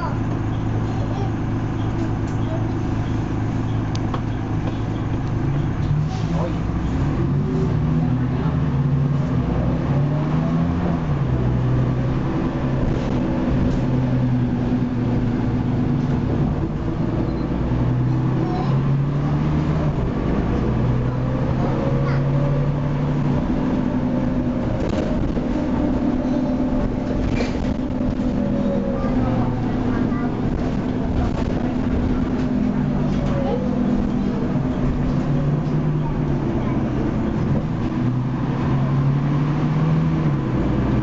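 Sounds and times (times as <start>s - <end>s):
bus diesel engine: 0.0s - 41.0s.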